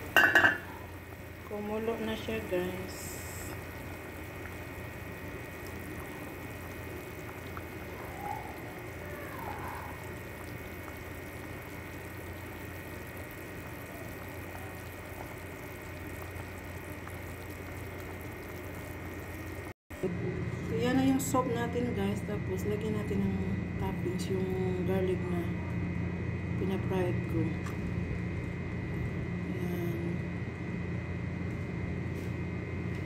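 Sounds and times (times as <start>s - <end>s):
soup boiling and bubbling: 0.0s - 19.8s
constant low hum: 0.0s - 33.0s.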